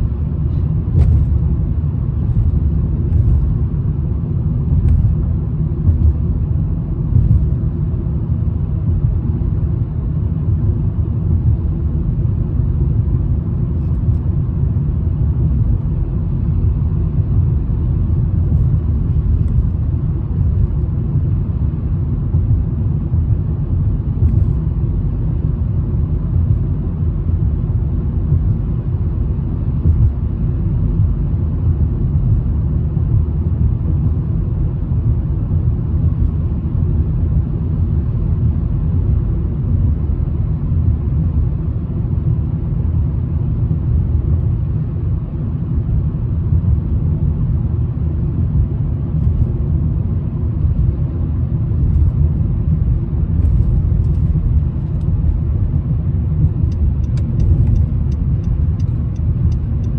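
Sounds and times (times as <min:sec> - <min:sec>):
car cabin road rumble: 0:00.0 - 0:59.9.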